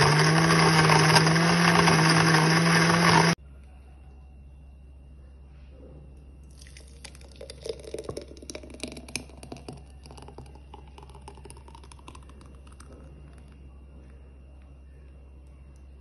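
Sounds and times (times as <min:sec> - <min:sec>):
milkshake pouring into jar: 0:06.5 - 0:13.6.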